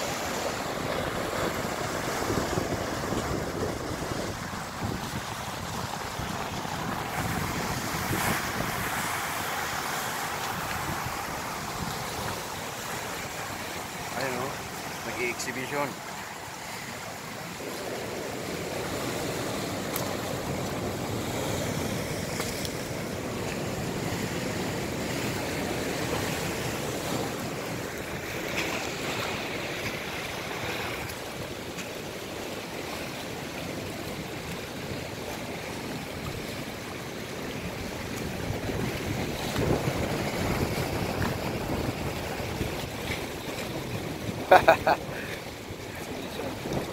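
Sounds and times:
wind buffeting microphone: 0:00.0 - 0:13.6, 0:37.7 - 0:44.5, 0:45.1 - 0:46.9
sea water sloshing: 0:00.0 - 0:46.9.

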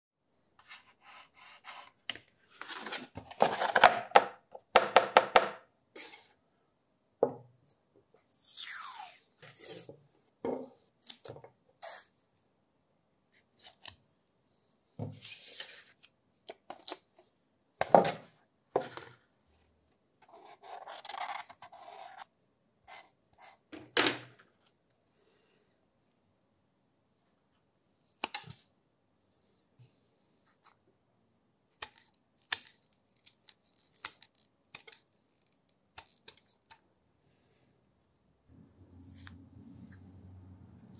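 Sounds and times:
tape screech: 0:08.4 - 0:09.3.

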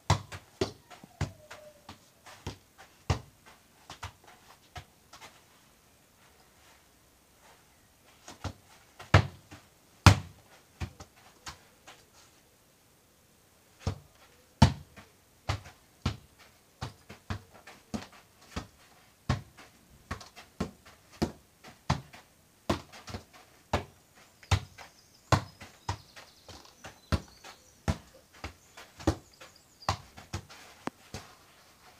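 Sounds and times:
football kicked with thuds: 0:00.0 - 0:03.3, 0:08.3 - 0:11.1, 0:14.6 - 0:26.2, 0:26.8 - 0:29.3.

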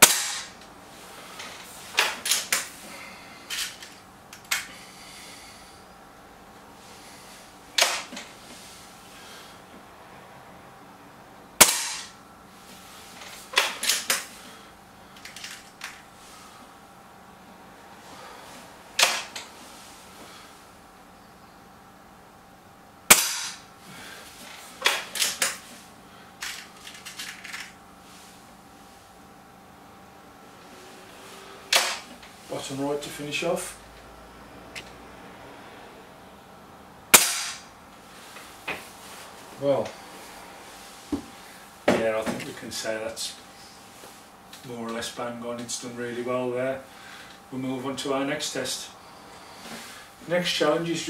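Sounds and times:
air rifle shot: 0:00.0 - 0:00.5, 0:23.1 - 0:23.6, 0:37.1 - 0:37.6.

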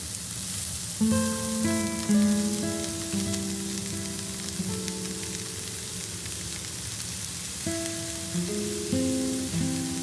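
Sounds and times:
vegetables sizzling in a frying pan: 0:00.0 - 0:10.0
soft background music: 0:01.0 - 0:06.7, 0:07.6 - 0:10.0.

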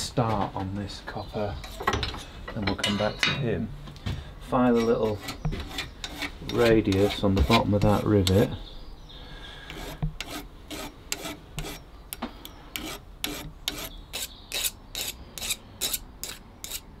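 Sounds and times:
hand file rasping on metal: 0:04.6 - 0:08.6, 0:09.7 - 0:11.8, 0:12.4 - 0:16.9.

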